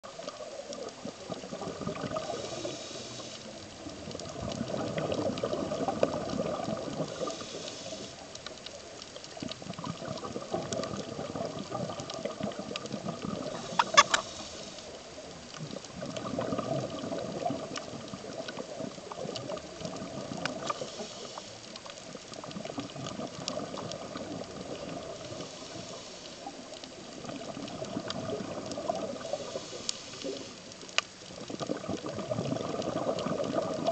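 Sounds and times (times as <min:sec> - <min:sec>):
exhaled bubbles gushing: 0:00.0 - 0:08.4, 0:09.2 - 0:14.4, 0:15.0 - 0:21.3, 0:22.0 - 0:30.6, 0:31.3 - 0:33.9
regulator hiss on inhale: 0:02.0 - 0:03.9, 0:05.8 - 0:08.5, 0:13.4 - 0:15.3, 0:20.4 - 0:22.0, 0:24.8 - 0:27.5, 0:28.8 - 0:31.1.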